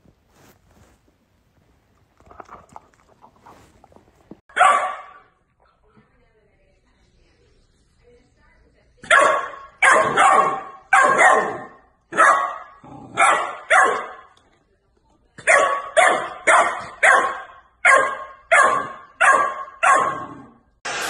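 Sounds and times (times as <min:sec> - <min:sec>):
puppy barking: 0:04.5 - 0:05.3, 0:09.0 - 0:14.3, 0:15.4 - 0:20.3.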